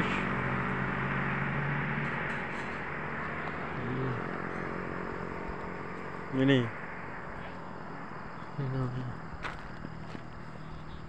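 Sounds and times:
car passing by: 0.0 - 8.3.

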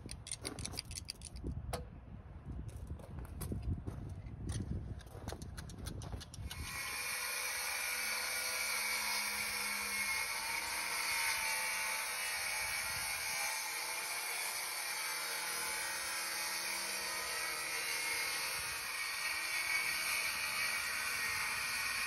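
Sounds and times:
circular saw cutting wood: 6.4 - 22.0.

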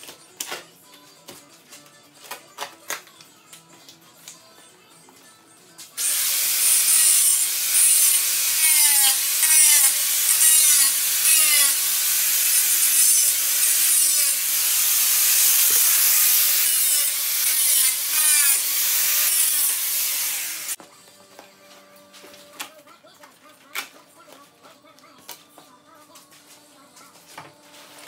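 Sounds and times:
angle grinder cutting steel: 6.0 - 20.8.

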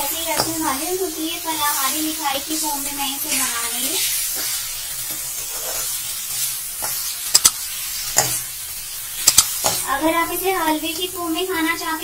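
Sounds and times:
mixture sizzling in pan: 0.0 - 12.0
spoon clicking against pan: 7.3 - 7.6, 9.2 - 9.8.

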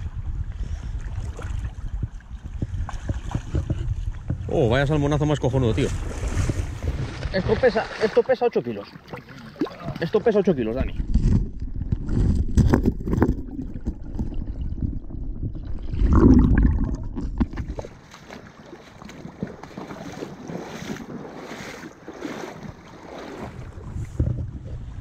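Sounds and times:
wind buffeting microphone: 0.0 - 7.8, 22.6 - 25.0.

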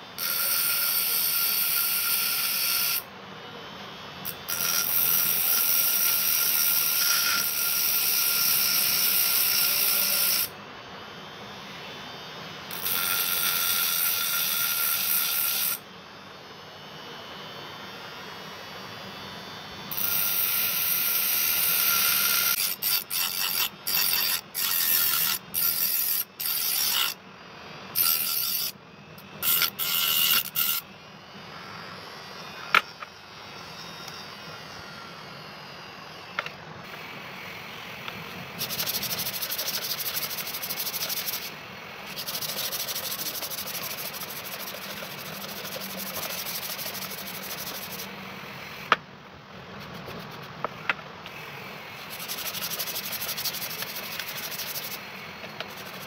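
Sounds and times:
grinder grinding steel blade: 0.2 - 3.1, 4.2 - 10.5, 12.7 - 15.8, 19.9 - 27.2, 27.9 - 30.9, 38.5 - 48.6, 51.3 - 56.0
abrasive rubbing on blade: 19.9 - 27.2, 28.0 - 28.8, 29.4 - 30.8, 38.6 - 48.2, 51.4 - 56.0.

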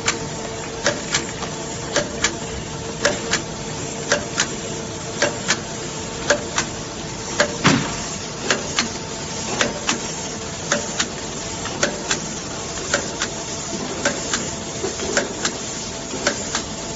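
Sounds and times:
machine whirring: 0.0 - 16.9.

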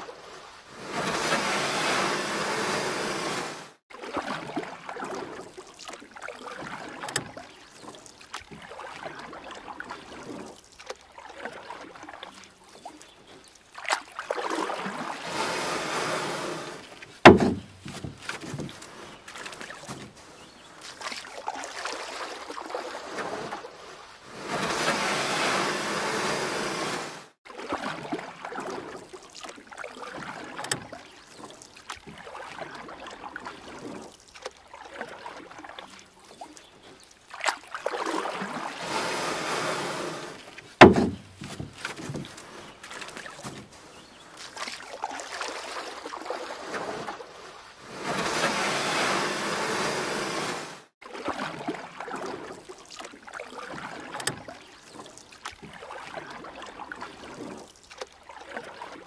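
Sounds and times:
paddle strokes splashing water: 0.0 - 59.0
sharp knock: 17.3 - 17.8.

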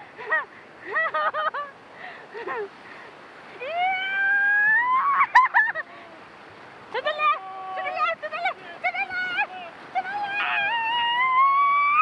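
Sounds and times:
rushing rapids: 0.0 - 12.0
people yelping and whooping: 3.6 - 6.0, 9.2 - 12.0.

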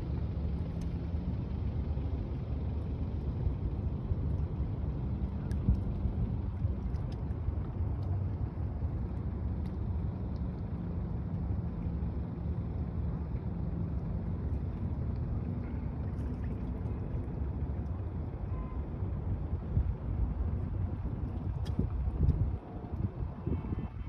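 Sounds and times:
distant city traffic: 0.0 - 24.0
faint steady drone: 0.0 - 24.0
wind buffeting microphone: 13.8 - 24.0.

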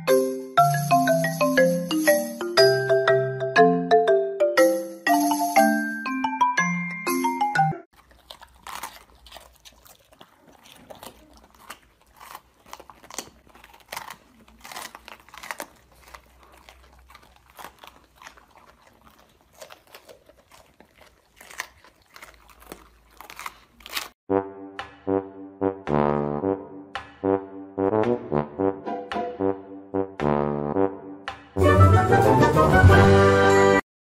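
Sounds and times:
dogs crunching peppers: 7.9 - 24.2.

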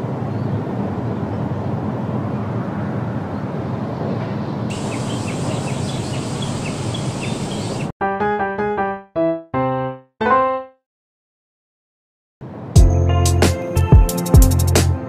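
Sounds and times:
small birds chirping: 4.7 - 7.9.

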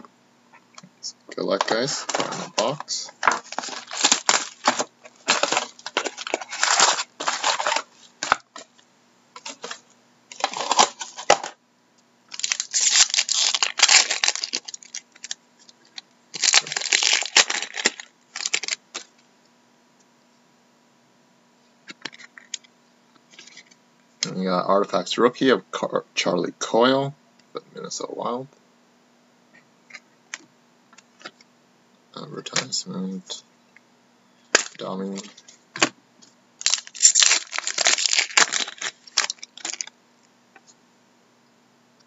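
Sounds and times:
wrappers tearing and crinkling: 1.6 - 8.7, 9.4 - 11.6, 12.3 - 19.1, 34.6 - 35.5, 36.6 - 39.9.

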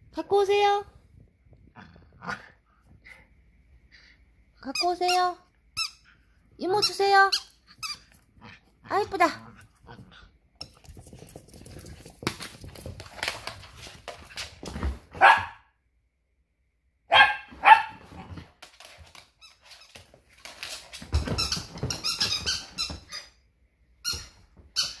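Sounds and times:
squeaky toy squeaking: 4.7 - 6.0, 6.8 - 8.1
dog barking: 15.2 - 15.7, 17.1 - 18.0.

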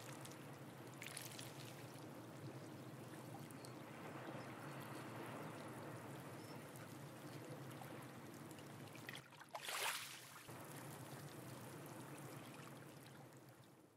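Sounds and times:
water splash: 9.2 - 10.5.

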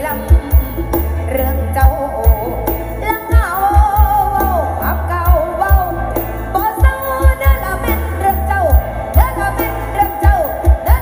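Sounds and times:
person singing: 0.0 - 11.0.

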